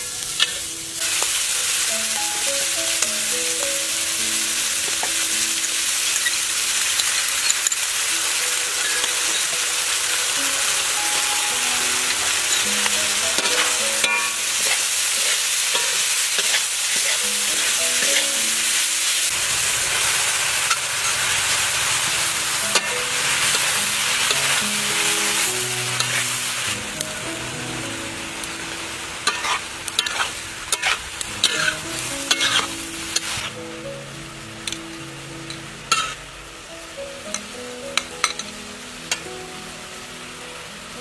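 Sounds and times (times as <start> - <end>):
food sizzling in metal pan: 0.0 - 41.0
spatula scraping pan: 12.1 - 18.4, 29.2 - 33.5.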